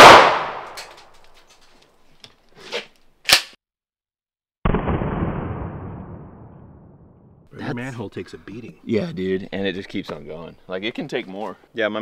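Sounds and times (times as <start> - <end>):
shotgun shot echo: 0.0 - 0.8, 4.6 - 6.3
muffled boom: 4.6 - 7.4.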